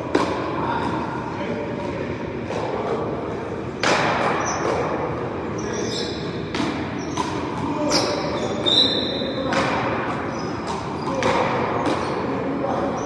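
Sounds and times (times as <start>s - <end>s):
paddles hitting rubber ball: 0.0s - 1.0s, 1.8s - 5.1s, 6.4s - 8.8s, 9.4s - 13.0s
background noise: 0.0s - 13.0s
short high squeaks: 7.9s - 9.3s.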